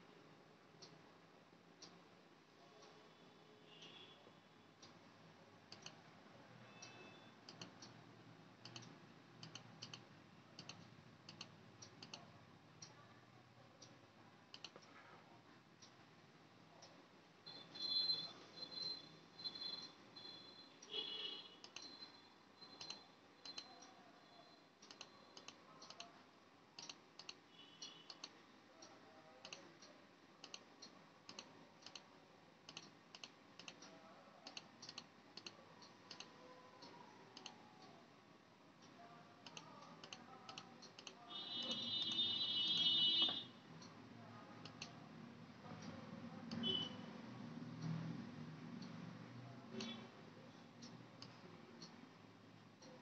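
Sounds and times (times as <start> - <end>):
computer mouse clicking: 5.7 - 6.0, 6.8 - 8.0, 8.6 - 13.0, 14.5 - 15.0, 21.6 - 21.9, 22.6 - 23.9, 24.8 - 26.1, 26.8 - 32.1, 32.7 - 38.0, 38.8 - 43.4, 44.6 - 45.0, 49.8 - 50.1, 50.8 - 52.0.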